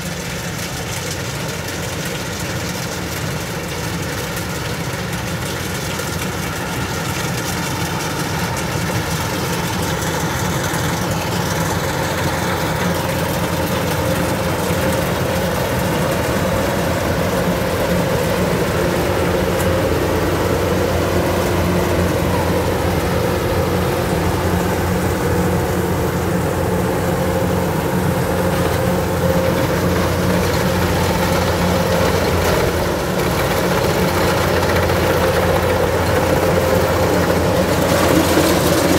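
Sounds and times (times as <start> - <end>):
combine harvester engine drone: 0.0 - 38.9
machine working clatter: 27.6 - 38.9.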